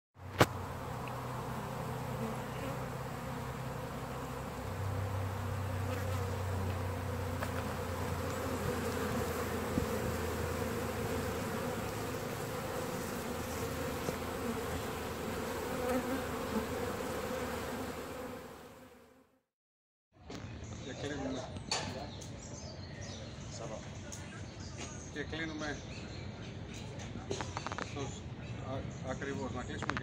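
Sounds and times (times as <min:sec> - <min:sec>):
bees buzzing: 0:00.2 - 0:19.2.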